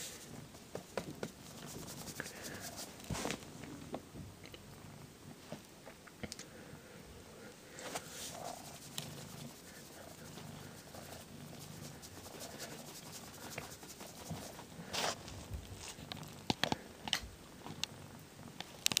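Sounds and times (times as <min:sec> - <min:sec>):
cat licking its fur: 0:08.2 - 0:15.2.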